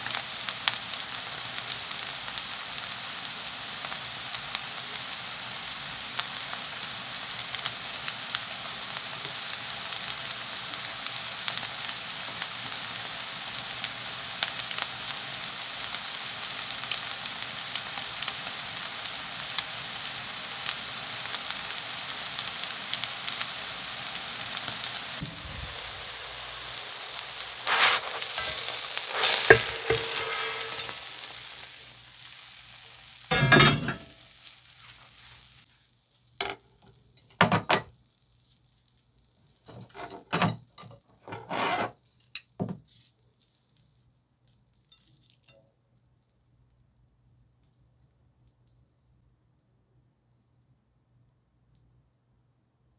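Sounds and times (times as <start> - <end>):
batter frying in oil: 0.0 - 40.8.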